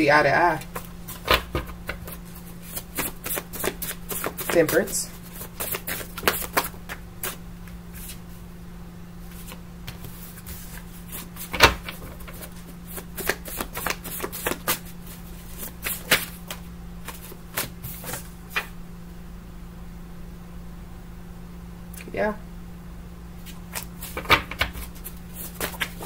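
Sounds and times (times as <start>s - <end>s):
steady low hum: 0.0s - 26.0s
cards being shuffled: 0.6s - 7.4s, 9.3s - 18.7s, 23.4s - 26.0s.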